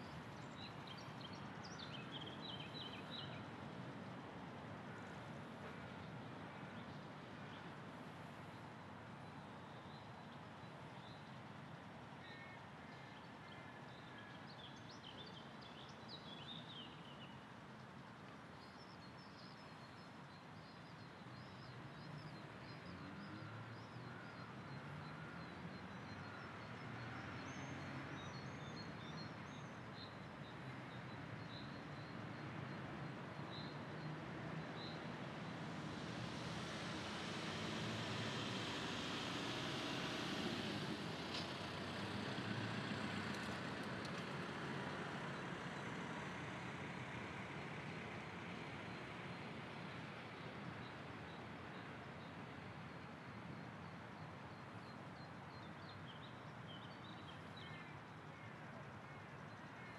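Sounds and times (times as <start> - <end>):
vehicle engine rumble: 36.1 - 48.4.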